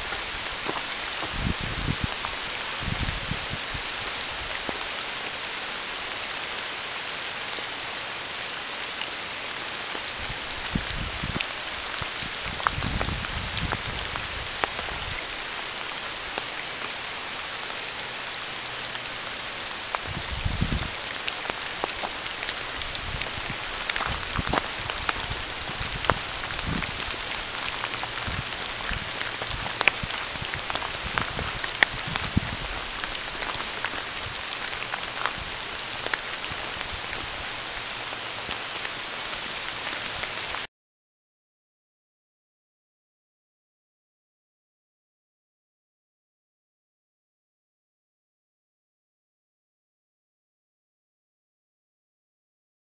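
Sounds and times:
rain falling on leaves: 0:00.0 - 0:40.7.

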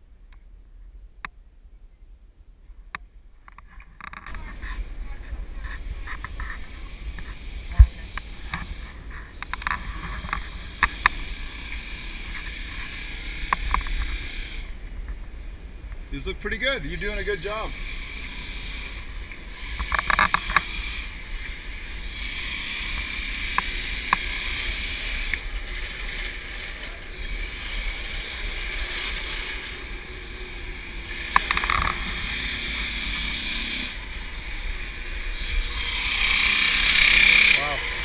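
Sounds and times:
air movers rushing: 0:15.6 - 0:38.0.

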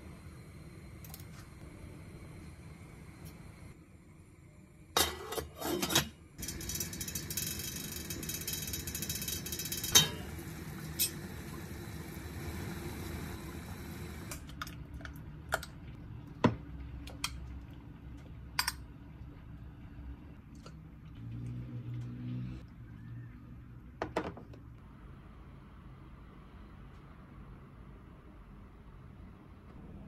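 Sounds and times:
steady appliance hum: 0:00.0 - 0:23.4
kitchen clatter: 0:05.0 - 0:11.3.

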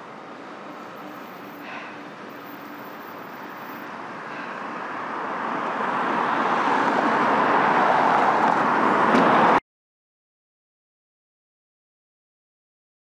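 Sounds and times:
car passing by: 0:00.0 - 0:09.6.

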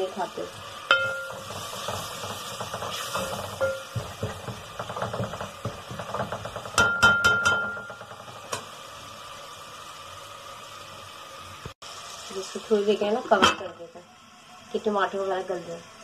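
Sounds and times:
food sizzling: 0:00.0 - 0:16.0
spoon scraping a pot: 0:00.9 - 0:06.6
spoon tapping on metal pot: 0:00.9 - 0:08.6.

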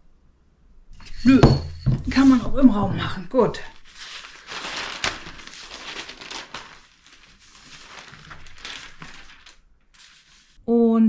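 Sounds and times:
newspaper rustling: 0:03.5 - 0:10.6.

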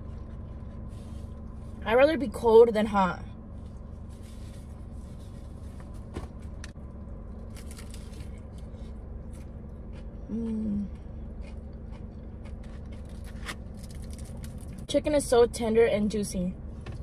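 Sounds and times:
steady low hum: 0:00.0 - 0:17.0
chewing crispy fried chicken: 0:06.9 - 0:14.9.

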